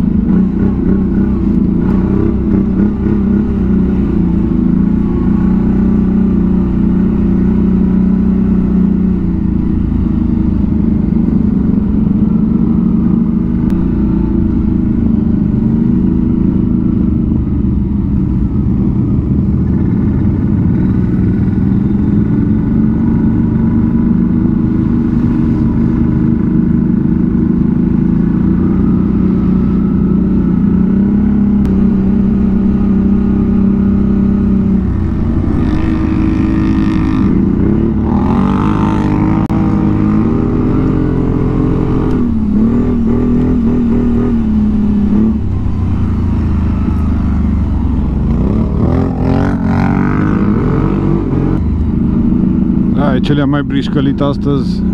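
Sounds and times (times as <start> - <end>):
atv engine running: 0.0 - 54.9.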